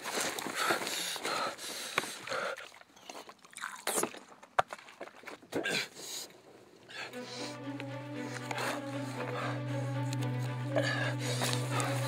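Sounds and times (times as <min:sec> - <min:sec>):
hands digging through dry soil: 0:08.2 - 0:12.0.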